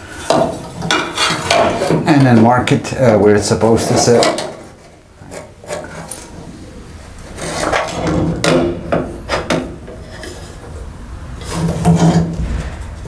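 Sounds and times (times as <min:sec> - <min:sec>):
light metal knocks and scraping: 0:00.2 - 0:02.8, 0:03.8 - 0:06.5, 0:11.4 - 0:13.0.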